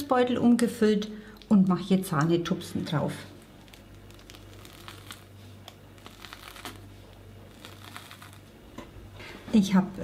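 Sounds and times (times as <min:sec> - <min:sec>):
plastic piping bag crinkling: 0:03.3 - 0:08.6.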